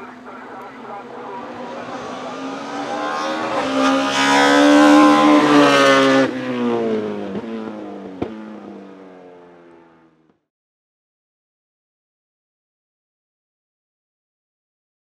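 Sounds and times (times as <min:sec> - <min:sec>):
race car engine at high revs: 0:00.0 - 0:10.4.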